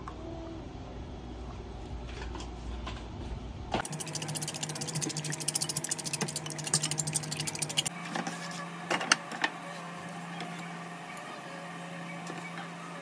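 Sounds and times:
eggs beaten in clay bowl: 0:03.8 - 0:07.9.

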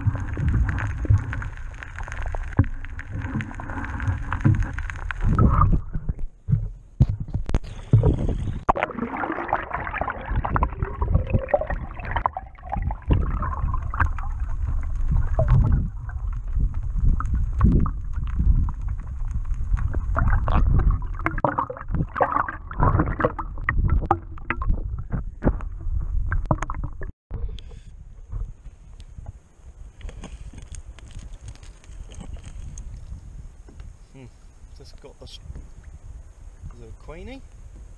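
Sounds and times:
muffled underwater water sloshing: 0:00.0 - 0:28.6.

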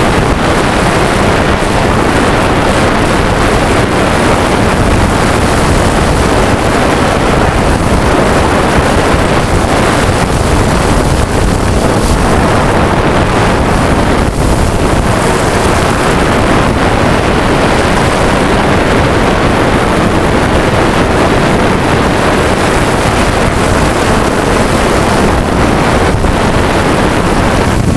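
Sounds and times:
drone propellers rushing: 0:00.0 - 0:27.9
wind on microphone: 0:00.0 - 0:27.9.

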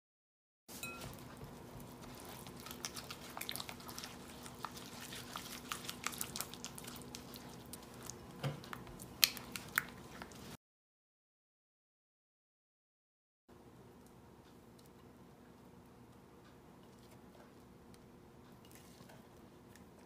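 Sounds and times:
spatula squishing wet mixture: 0:00.7 - 0:10.6, 0:14.5 - 0:20.0.

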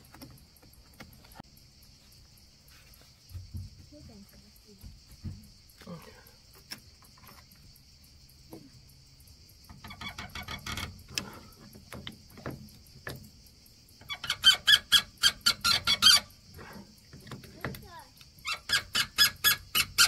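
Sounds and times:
pipe fitting squeaking: 0:09.7 - 0:11.4.

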